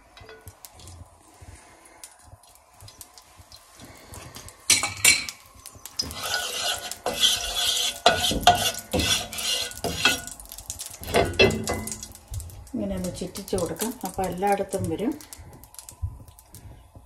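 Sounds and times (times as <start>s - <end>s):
wooden spatula scraping frying pan: 6.0s - 10.4s.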